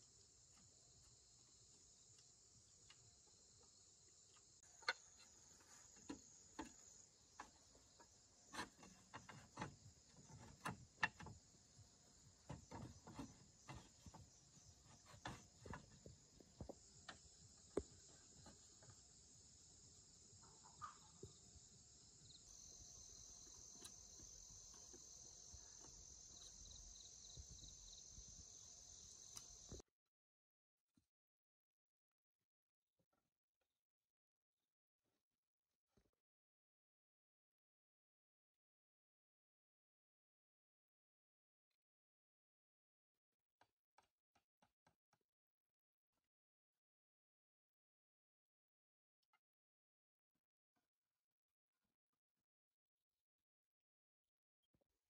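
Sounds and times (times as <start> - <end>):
insect chorus chirring: 0.0 - 29.8.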